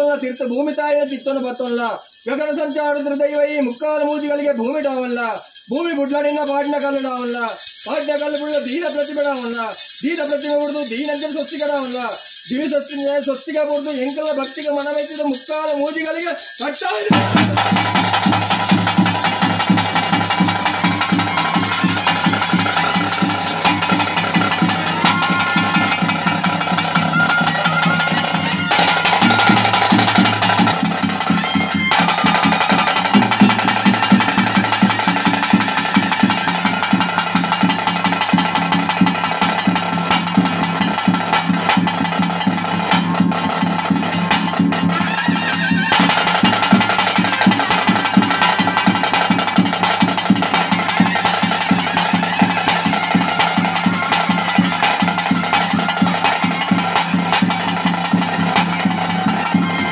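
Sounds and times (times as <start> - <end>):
fast drumming: 0.0 - 59.9
sustained pitched melody: 21.0 - 32.0.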